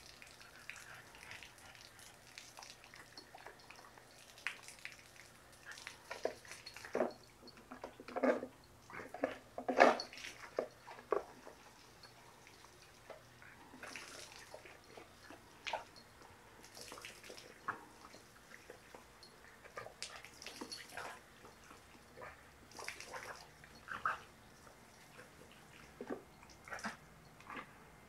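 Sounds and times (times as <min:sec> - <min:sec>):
dog splashing and snapping: 0:00.0 - 0:07.1, 0:13.8 - 0:15.9, 0:16.6 - 0:19.0, 0:19.7 - 0:27.7.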